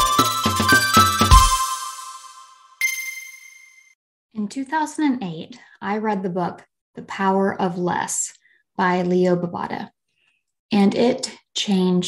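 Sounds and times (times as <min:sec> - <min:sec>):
synth music with drum beat: 0:00.0 - 0:02.5
bright chime: 0:00.0 - 0:04.0.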